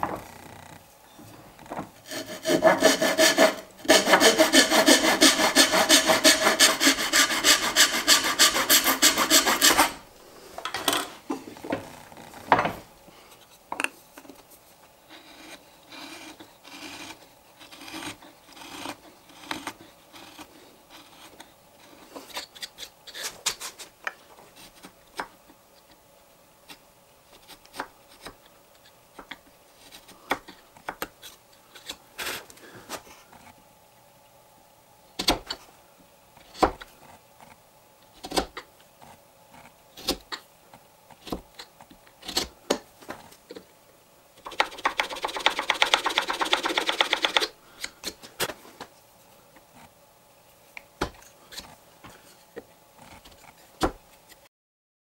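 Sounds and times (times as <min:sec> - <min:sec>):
hand saw cutting wood: 0:02.0 - 0:10.0, 0:15.2 - 0:21.4, 0:44.4 - 0:47.5
chisel paring wood: 0:02.1 - 0:10.0.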